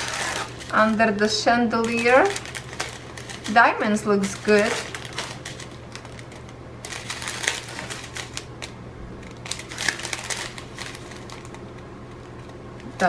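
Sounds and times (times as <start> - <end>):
plastic beads rattling in bags: 0.0 - 8.5
thin plastic crinkling: 0.0 - 13.0.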